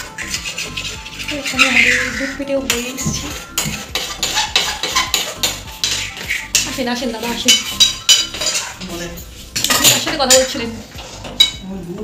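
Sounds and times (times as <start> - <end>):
metal spoon clinking on pot: 7.4 - 9.0, 9.6 - 10.6, 11.4 - 11.6.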